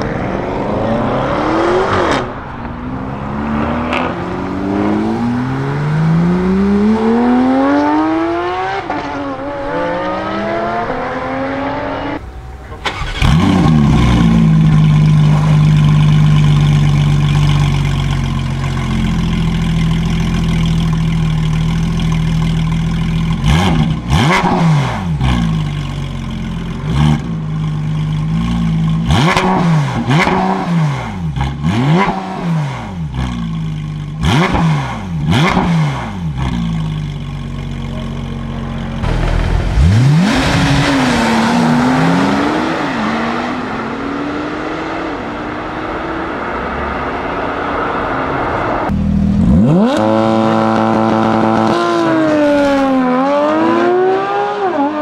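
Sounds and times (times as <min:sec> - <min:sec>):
car accelerating through upshifts: 0:00.0 - 0:12.2, 0:39.0 - 0:55.0
engine throttle blips: 0:09.7 - 0:18.3, 0:37.6 - 0:44.2
sports car engine idling: 0:12.2 - 0:24.2, 0:25.2 - 0:29.1, 0:33.1 - 0:34.2, 0:36.3 - 0:40.4, 0:48.8 - 0:49.5.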